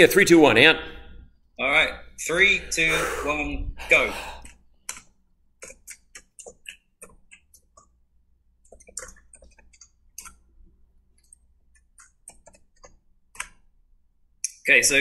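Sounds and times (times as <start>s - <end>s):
typing on computer keyboard: 4.9s - 8.0s, 8.6s - 10.4s, 11.2s - 13.6s.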